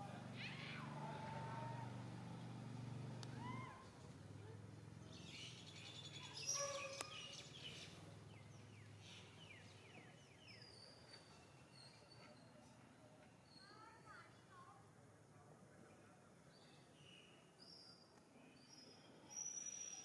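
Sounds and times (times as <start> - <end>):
birds chirping: 5.0 - 12.7.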